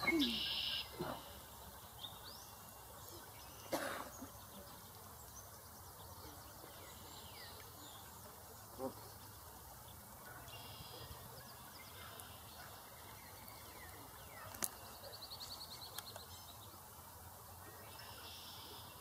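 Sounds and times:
high-pitched bird calls: 0:00.0 - 0:01.0
rapid bird trill: 0:00.0 - 0:01.0, 0:10.5 - 0:11.3
outdoor background noise: 0:00.0 - 0:19.0.

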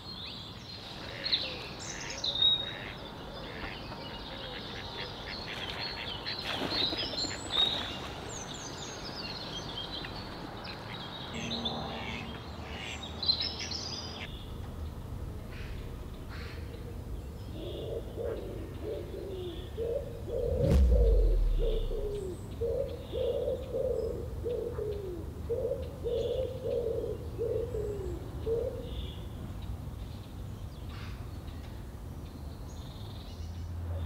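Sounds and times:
dull low thump: 0:20.5 - 0:22.4.

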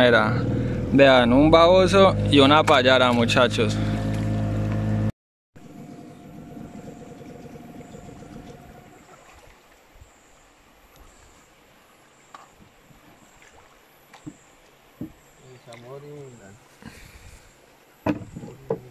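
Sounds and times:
boat motor running: 0:00.0 - 0:09.7
soft knocks: 0:15.0 - 0:15.2, 0:18.0 - 0:18.9.

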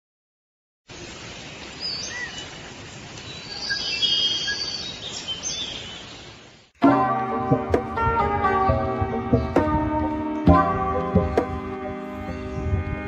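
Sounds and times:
steady forest hiss: 0:00.9 - 0:06.8
birds chirping and whistling: 0:03.3 - 0:06.4.

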